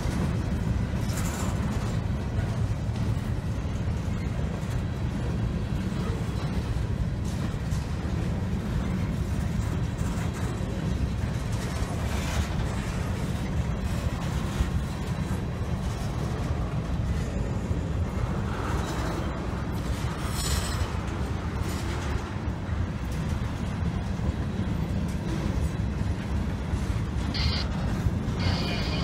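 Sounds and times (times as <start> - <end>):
freight train wheels rumbling on rail: 0.0 - 29.0.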